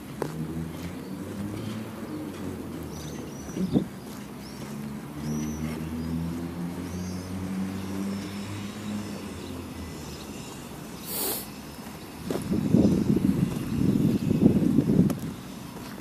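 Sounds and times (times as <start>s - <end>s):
vehicle engine humming: 0.0s - 16.0s
short high hiss: 11.0s - 11.6s.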